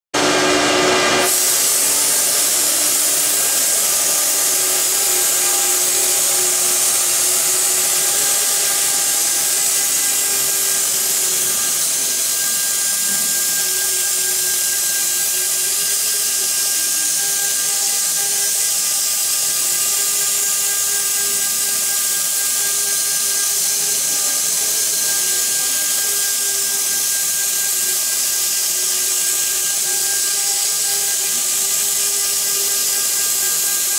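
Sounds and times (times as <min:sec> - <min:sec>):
router spindle hiss and whine: 0:00.2 - 0:33.9.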